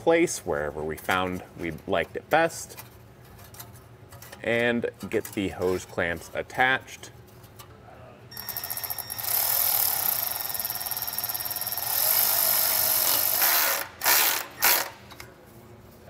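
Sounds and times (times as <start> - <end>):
electric ratchet clicking and whirring: 8.3 - 15.3.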